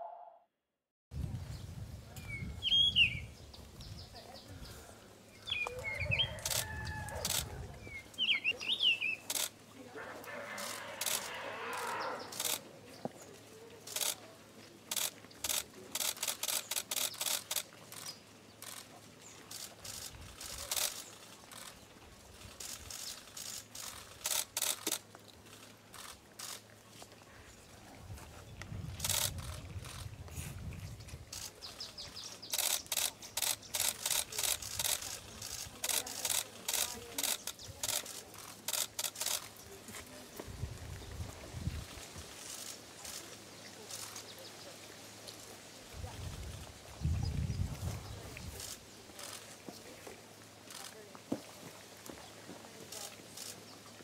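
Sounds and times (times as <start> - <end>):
camera shutters clicking: 5.6 - 7.6, 9.2 - 9.6, 10.5 - 12.6, 14.9 - 18.9, 19.5 - 21.8, 22.4 - 26.6, 29.0 - 30.1, 31.3 - 39.5.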